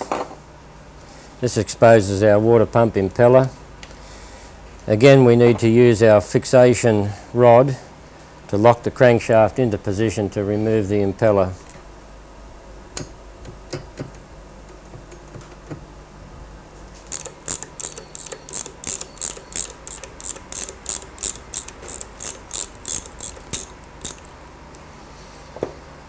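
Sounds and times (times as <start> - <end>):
socket wrench ratchet clicking: 17.1 - 24.3.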